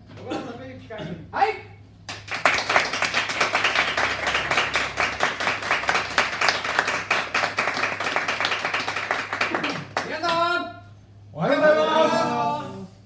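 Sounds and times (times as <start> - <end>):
audience applause: 2.3 - 10.1.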